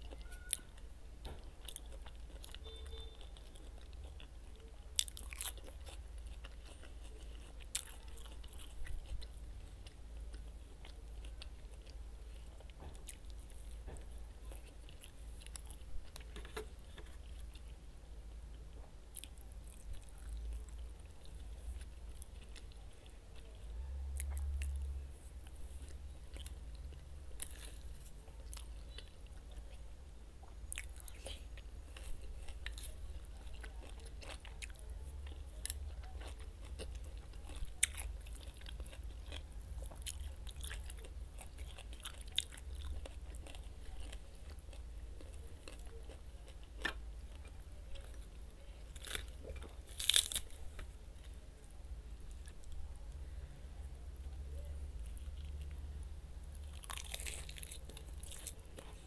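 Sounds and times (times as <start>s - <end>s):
chewing and biting food: 0.0s - 17.8s, 18.5s - 51.4s, 55.0s - 59.0s
steady low hum: 0.0s - 59.0s
crisp crunches: 48.8s - 50.9s, 56.6s - 59.0s.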